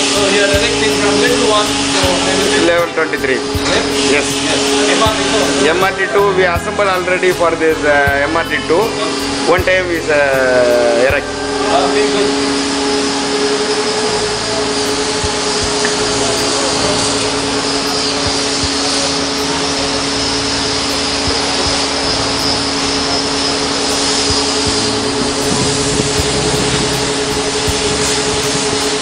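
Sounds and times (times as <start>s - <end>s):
machinery mechanical drone: 0.0s - 29.0s
low two-tone hum: 11.0s - 29.0s.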